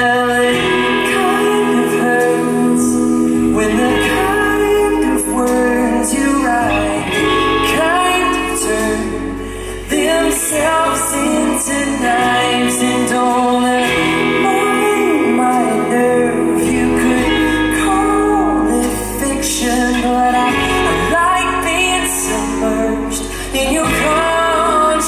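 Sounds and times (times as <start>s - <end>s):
live band with guitars and drums: 0.0s - 25.0s
man and woman singing: 0.0s - 25.0s.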